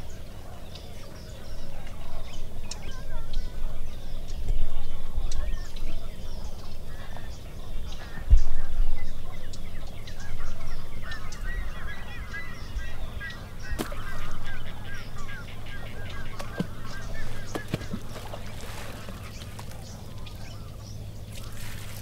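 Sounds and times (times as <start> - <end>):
waterfowl honking: 9.3 - 22.0.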